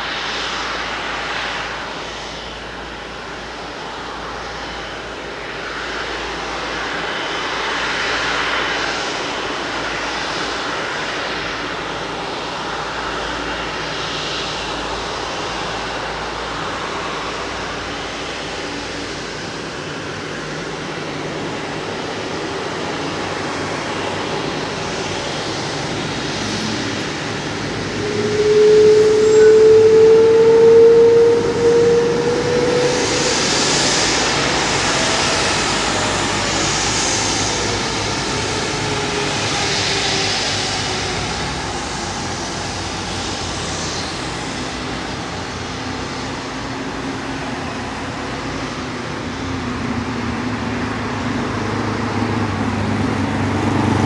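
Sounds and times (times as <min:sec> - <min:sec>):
jet engines at taxi power: 0:00.0 - 0:54.0
loud steady rising tone: 0:00.0 - 0:54.0.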